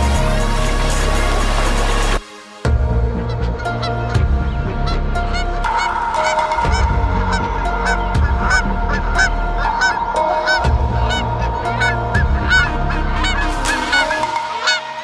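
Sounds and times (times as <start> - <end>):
background music with deep bass: 0.0 - 15.0
geese honking: 3.1 - 15.0.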